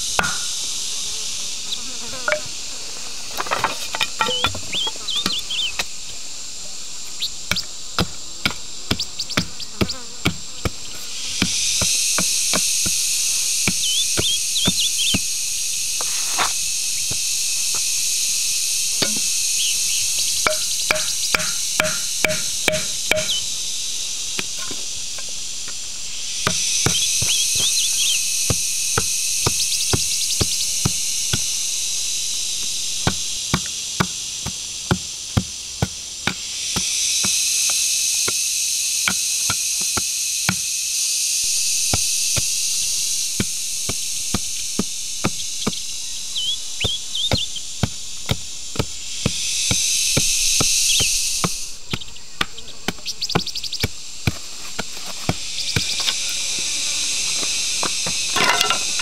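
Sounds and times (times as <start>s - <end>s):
insects buzzing: 0.0s - 59.0s
wooden club knocking bamboo stakes: 0.2s - 0.5s, 20.4s - 23.4s, 58.0s - 59.0s.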